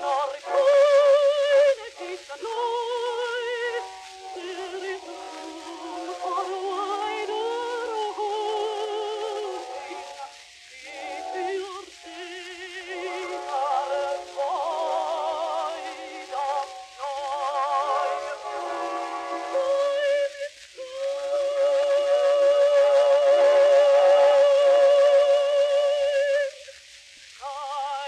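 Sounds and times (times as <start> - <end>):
woman singing with vibrato: 0.0 - 10.3, 10.9 - 26.7, 27.4 - 28.0
gramophone record surface noise: 0.0 - 28.0.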